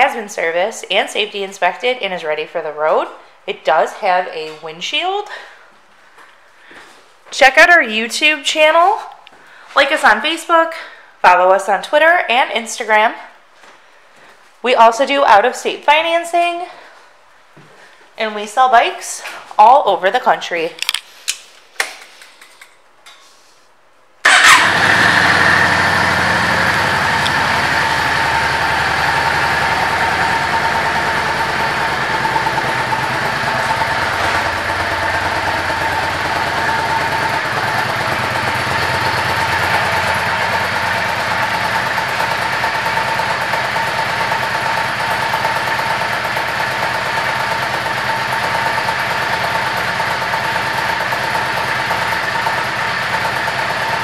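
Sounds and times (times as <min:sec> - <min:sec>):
motorcycle engine idling: 0:24.2 - 0:54.0.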